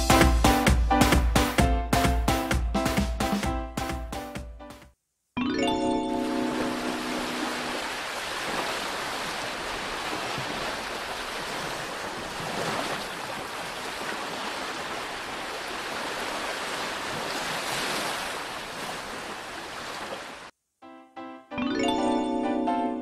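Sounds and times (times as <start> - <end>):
sea waves breaking on beach: 6.1 - 20.5.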